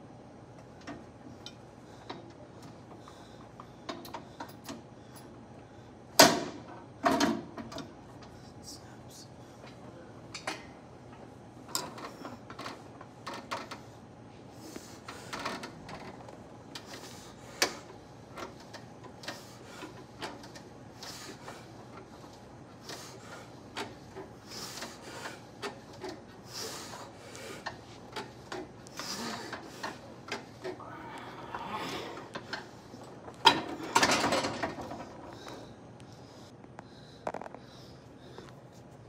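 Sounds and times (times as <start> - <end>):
exercise machine clicks and knocks: 33.3 - 35.5.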